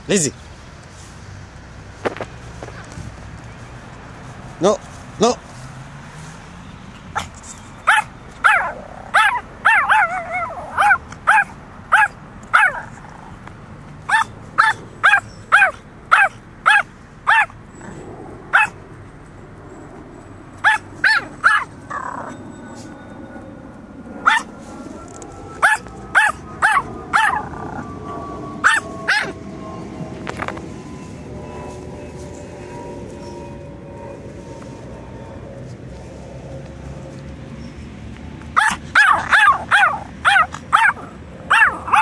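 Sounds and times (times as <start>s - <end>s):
small dog yapping: 7.2s - 13.0s, 14.1s - 17.5s, 18.5s - 18.8s, 20.6s - 22.4s, 24.2s - 24.5s, 25.6s - 27.7s, 28.6s - 29.4s, 38.6s - 42.0s.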